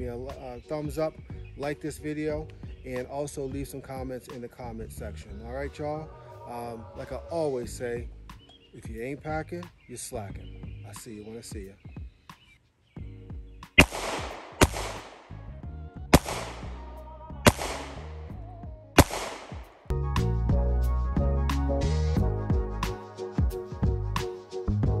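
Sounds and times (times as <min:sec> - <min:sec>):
background music: 0:00.0 - 0:25.0
pistol shots echoing: 0:13.8 - 0:15.4, 0:16.2 - 0:16.9, 0:17.5 - 0:18.3, 0:19.0 - 0:19.9.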